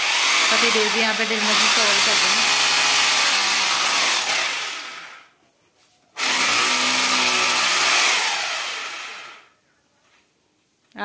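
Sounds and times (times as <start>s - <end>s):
electric drill boring into wall: 0.0s - 5.3s, 6.2s - 9.5s.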